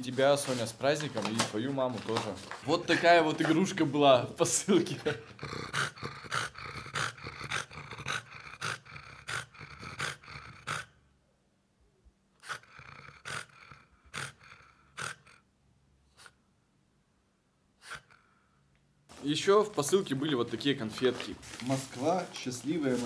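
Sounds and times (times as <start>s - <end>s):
dog growling: 4.9s - 11.1s, 12.4s - 15.5s
dog snorting: 4.9s - 11.1s, 12.4s - 16.5s, 17.8s - 18.4s.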